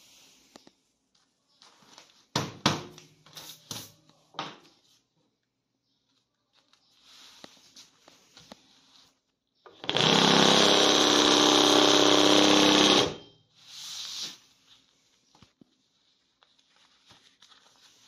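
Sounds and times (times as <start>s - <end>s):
needle machine running: 9.8s - 13.2s.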